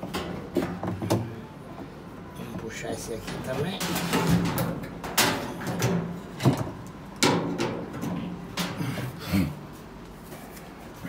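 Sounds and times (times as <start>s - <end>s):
metallic knocks and clanks: 3.2s - 8.8s.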